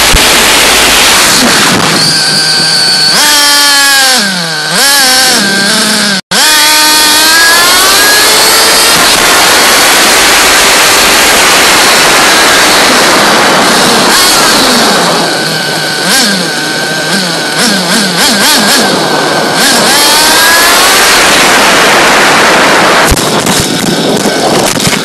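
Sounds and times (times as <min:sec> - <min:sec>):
small engine revving high: 0:00.0 - 0:25.0
wind rush: 0:08.1 - 0:17.6, 0:18.9 - 0:25.0.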